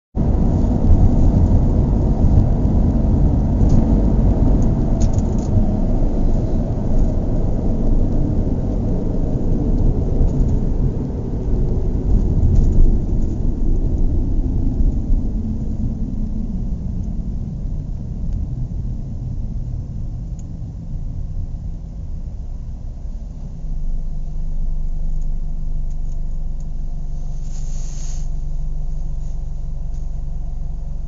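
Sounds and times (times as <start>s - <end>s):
car engine idling: 0.2s - 31.0s.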